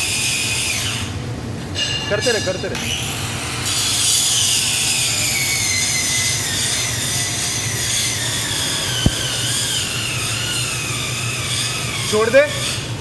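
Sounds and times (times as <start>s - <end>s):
steady low hum: 0.0s - 13.0s
grinder motor whine: 2.8s - 13.0s.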